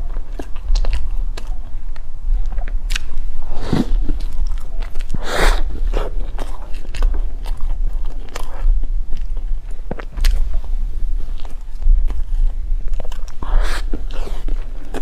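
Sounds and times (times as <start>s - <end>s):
chewing crumbly bread: 0.0s - 15.0s
low steady hum: 0.0s - 15.0s.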